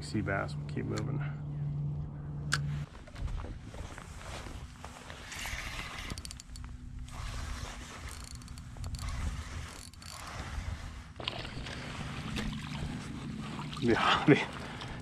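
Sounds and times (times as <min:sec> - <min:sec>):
reel clicks: 0:05.2 - 0:07.2, 0:07.8 - 0:11.9
spinning reel winding: 0:05.4 - 0:06.6, 0:08.0 - 0:10.6.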